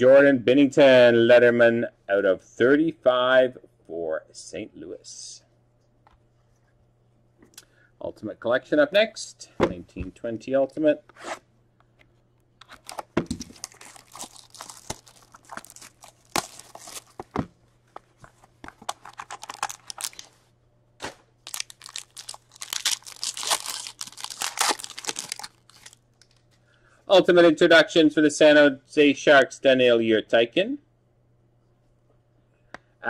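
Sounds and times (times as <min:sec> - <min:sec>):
plastic wrap crinkling and tearing: 0:12.6 - 0:17.4, 0:18.7 - 0:20.4, 0:21.4 - 0:26.4.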